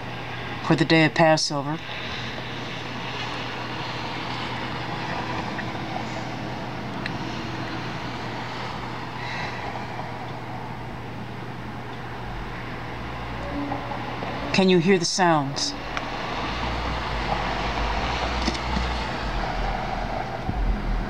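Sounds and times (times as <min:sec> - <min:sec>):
low hum: 0:01.6 - 0:21.0
outdoor rumble: 0:01.9 - 0:14.6, 0:15.6 - 0:21.0
faint drawn-out tone: 0:11.8 - 0:21.0.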